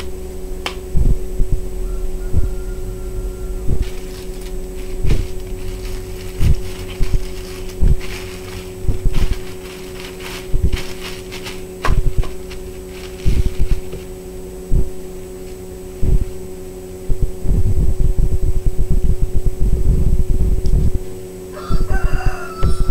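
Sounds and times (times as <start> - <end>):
low rumbling bumps: 0.0 - 15.0, 17.1 - 21.1
electrical hum: 0.0 - 22.9
plastic bag crinkling: 3.8 - 14.2.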